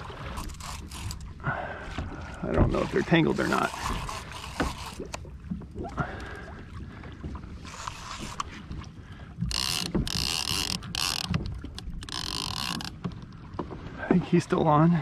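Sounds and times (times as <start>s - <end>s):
water around kayak: 0.0s - 15.0s
gear knocks and clicks: 9.4s - 13.4s.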